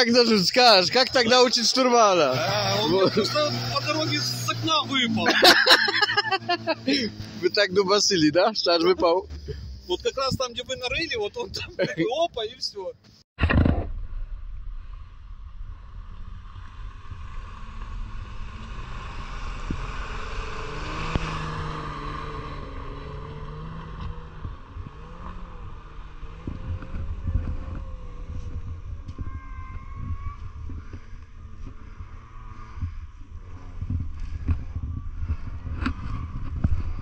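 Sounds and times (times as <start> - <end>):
wind rumble on microphone: 13.4 - 37.0.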